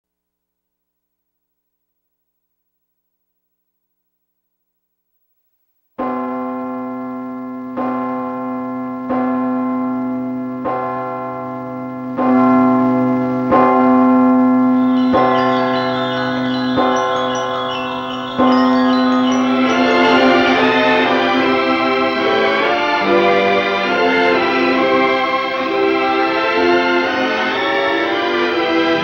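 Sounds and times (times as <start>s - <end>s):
large bell tolling: 6.0s - 29.0s
higher quicker bell ringing: 14.8s - 25.4s.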